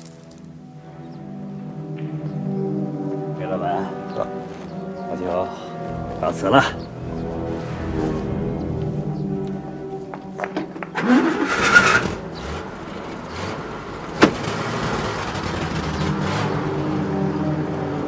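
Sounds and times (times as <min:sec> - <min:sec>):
car engine running: 0:10.6 - 0:18.0.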